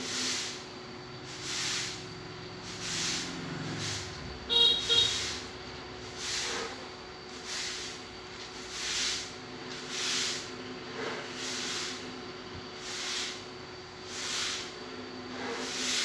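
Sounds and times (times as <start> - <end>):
short horn toots: 4.5 - 5.4.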